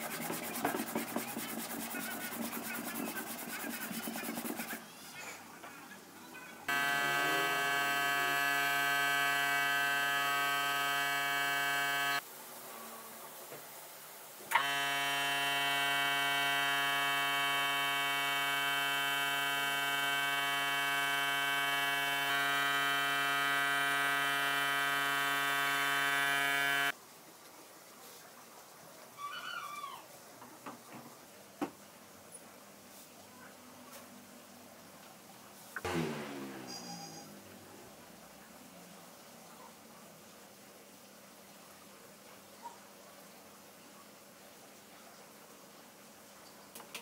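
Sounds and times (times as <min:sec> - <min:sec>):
air compressor buzzing hum: 0:06.7 - 0:12.2, 0:14.5 - 0:26.9, 0:35.8 - 0:37.1.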